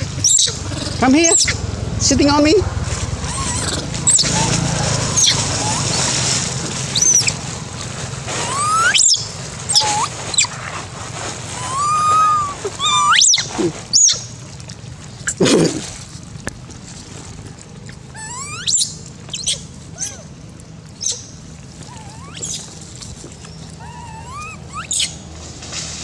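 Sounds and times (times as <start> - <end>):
young monkeys squealing: 0.0 - 1.6, 3.0 - 7.5, 8.3 - 10.7, 11.4 - 14.4, 15.2 - 15.9, 17.8 - 20.4, 21.0 - 25.3.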